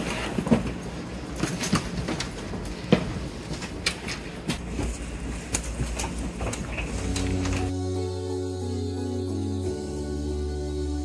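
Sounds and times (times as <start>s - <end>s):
low steady train cabin hum: 0.0s - 11.0s.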